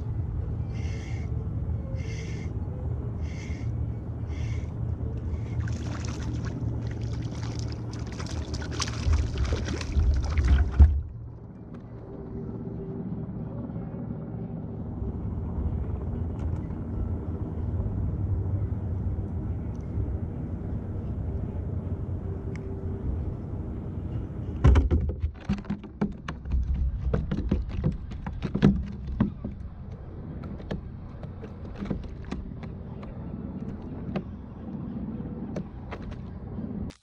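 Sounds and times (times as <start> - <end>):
low rumble: 0.0 - 24.8
clicks and knocks of rod and reel: 24.7 - 34.4.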